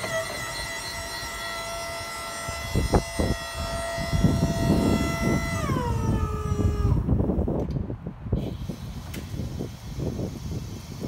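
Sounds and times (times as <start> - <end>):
hydraulic pump motor whining: 0.0 - 7.8
wind rumble on microphone: 2.4 - 11.0.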